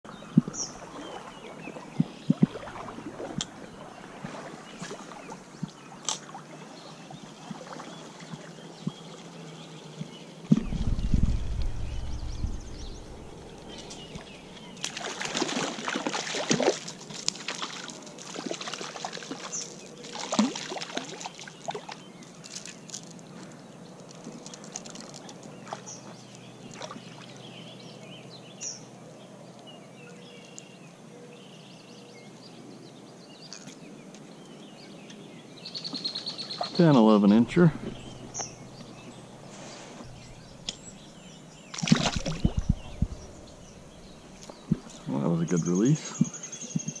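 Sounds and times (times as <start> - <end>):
water splashing and sloshing: 0.1 - 9.4, 10.0 - 27.6, 35.8 - 47.0
low microphone rumble: 10.5 - 14.9, 37.3 - 45.1.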